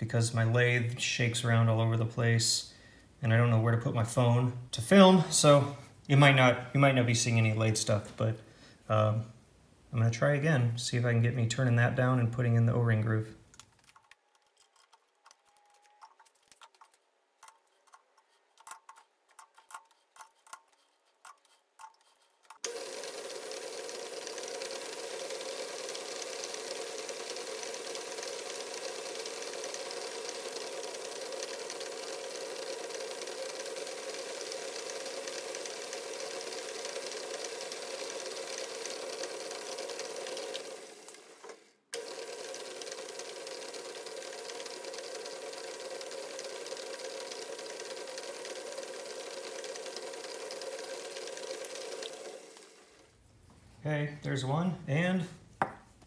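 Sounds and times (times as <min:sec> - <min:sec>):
metal lathe running: 0:22.6 - 0:52.8.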